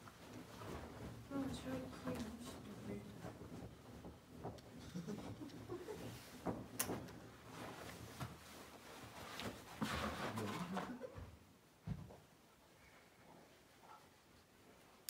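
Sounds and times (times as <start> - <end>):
strap rustling: 0.0 - 11.0.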